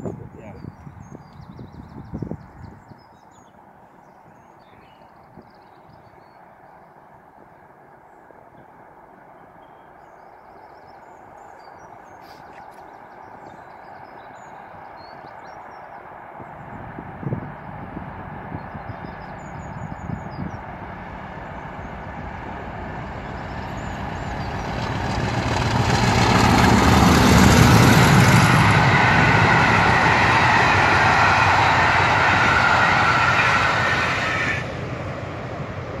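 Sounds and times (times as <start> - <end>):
diesel locomotive engine hum: 0.0 - 36.0
train wheels rushing on rails: 11.7 - 36.0.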